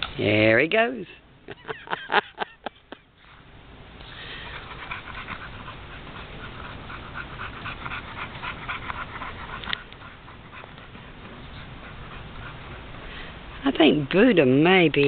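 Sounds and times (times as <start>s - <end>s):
dog panting: 3.2s - 15.0s.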